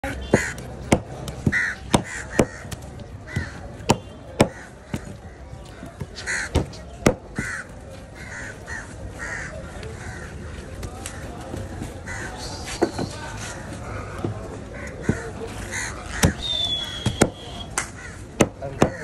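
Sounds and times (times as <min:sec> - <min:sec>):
crows cawing: 0:00.3 - 0:00.6, 0:01.5 - 0:03.8, 0:04.4 - 0:11.3, 0:12.0 - 0:12.4, 0:13.4 - 0:16.4, 0:17.9 - 0:19.0.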